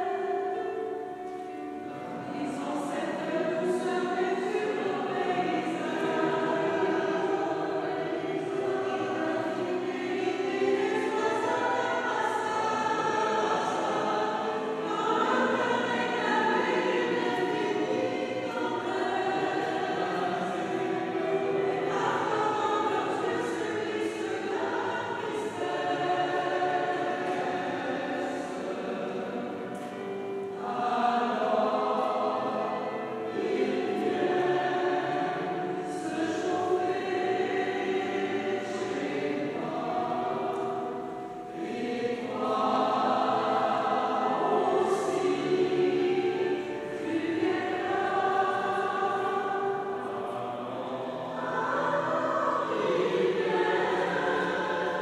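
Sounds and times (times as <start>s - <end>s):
mixed choir singing: 0.0s - 55.0s.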